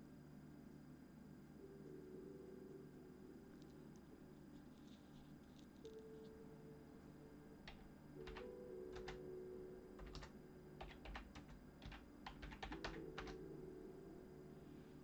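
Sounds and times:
faint background music: 0.0s - 15.0s
keyboard typing: 7.6s - 9.3s, 10.0s - 13.5s.

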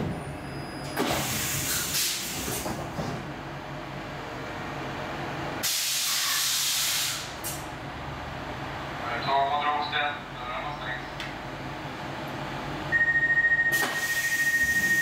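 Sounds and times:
compressed air hiss: 5.6s - 7.6s.

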